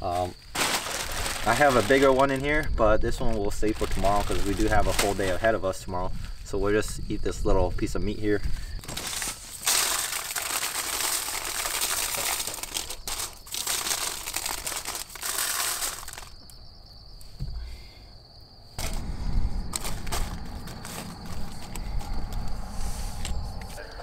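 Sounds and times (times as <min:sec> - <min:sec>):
foil crinkling: 0:00.2 - 0:05.4, 0:08.8 - 0:16.5, 0:19.7 - 0:22.3
low rumble: 0:18.8 - 0:24.0.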